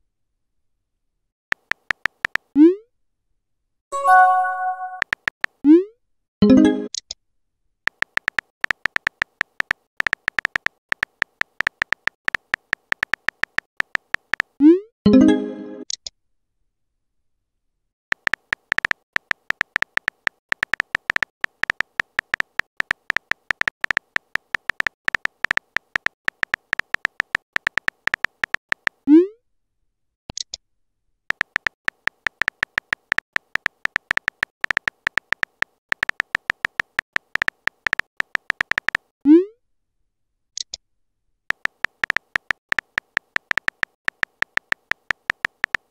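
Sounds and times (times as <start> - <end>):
synthetic keyboard clicks: 1.5 - 2.7, 4.0 - 5.8, 7.9 - 16.1, 18.1 - 29.1, 31.3 - 39.1, 41.5 - 45.9.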